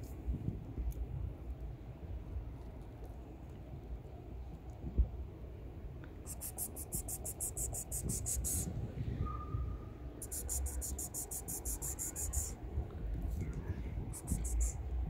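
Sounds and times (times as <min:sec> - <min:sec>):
insect trilling: 0:10.2 - 0:12.6.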